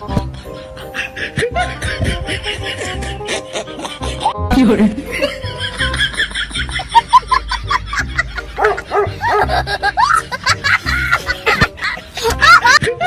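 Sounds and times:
background music: 0.0 - 13.0
dog barking: 8.6 - 9.5.

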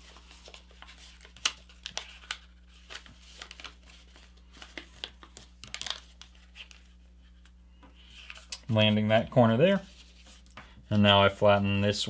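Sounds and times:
sharp paper crackle: 0.0 - 6.9
paper crinkling and rustling: 0.0 - 7.5.

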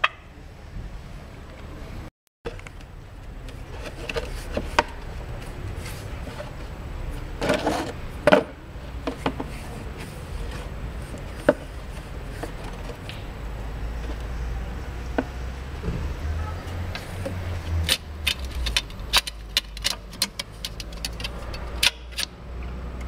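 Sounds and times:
loud scraping rustle: 3.6 - 8.2, 9.2 - 14.8
clutch disc clicking and scraping: 16.7 - 23.0.

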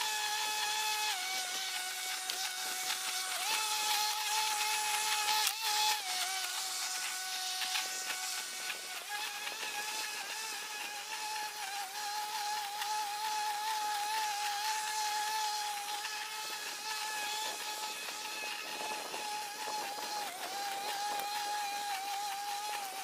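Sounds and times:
lawn mower cutting grass: 0.0 - 23.0.

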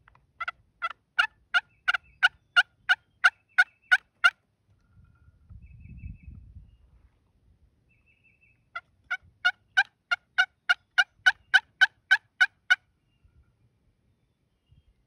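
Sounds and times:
turkey yelping: 0.4 - 4.3, 9.1 - 12.7.

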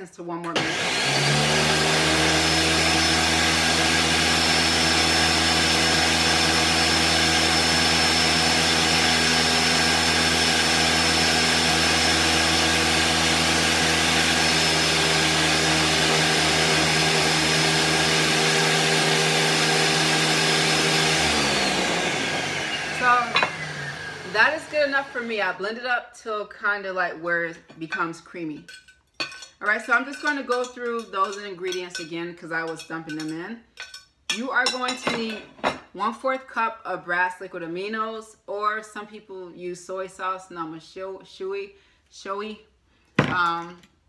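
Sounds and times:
blender running at high speed: 0.5 - 25.6.

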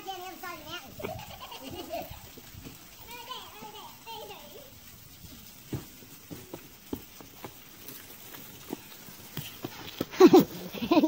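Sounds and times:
footsteps scuffing on rock: 5.3 - 10.6.

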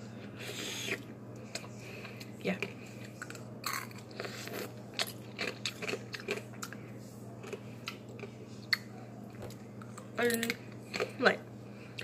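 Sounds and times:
steady low hum: 0.0 - 12.0
ice being chewed: 0.4 - 6.8, 7.4 - 8.9.

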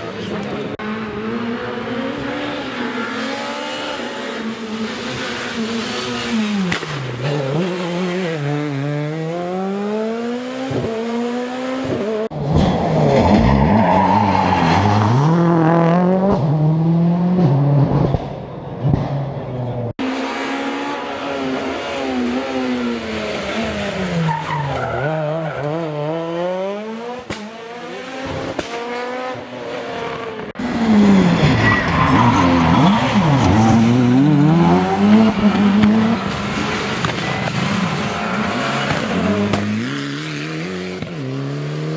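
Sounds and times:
rally car engines revving: 0.0 - 41.9
tyre squeal: 30.9 - 34.0.

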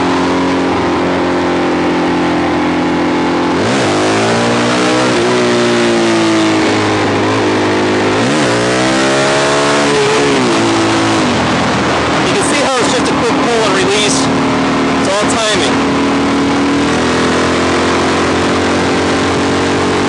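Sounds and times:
motorcycle engine revving: 0.0 - 20.0
wind noise: 4.9 - 15.1.

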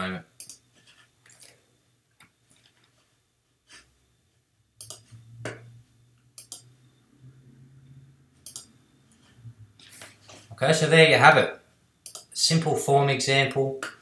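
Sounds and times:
low steady hum: 0.0 - 14.0
computer mouse clicks: 0.4 - 0.6, 4.8 - 5.1, 6.4 - 6.7, 8.4 - 9.2, 12.0 - 12.3.

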